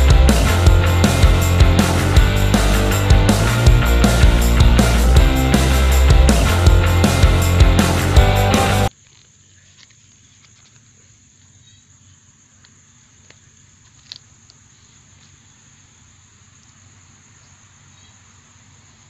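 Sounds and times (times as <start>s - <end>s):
crickets chirring: 8.9s - 19.0s.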